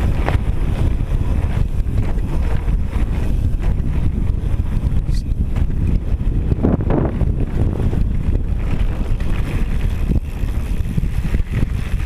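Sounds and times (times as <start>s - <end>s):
tyres rumbling over gravel: 0.0s - 4.8s, 7.3s - 12.0s
bike rattling: 0.0s - 12.0s
wind buffeting microphone: 0.0s - 12.0s.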